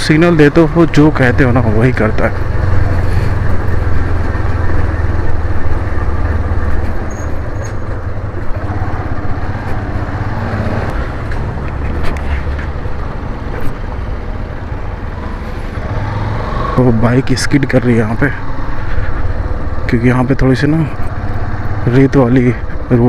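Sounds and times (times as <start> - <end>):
wind and road noise: 0.0 - 23.0
motorcycle engine running: 1.1 - 15.1.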